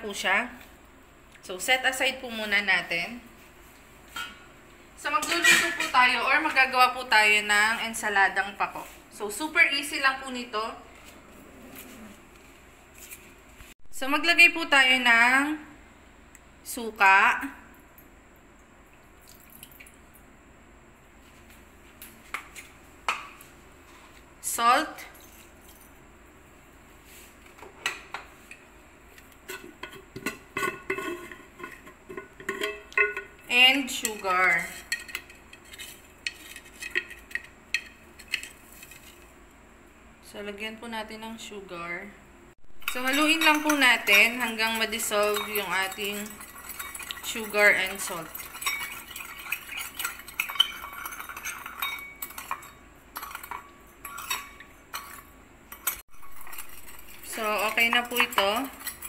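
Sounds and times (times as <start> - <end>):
utensil clinking on dishware: 29.5 - 33.4, 42.8 - 59.0.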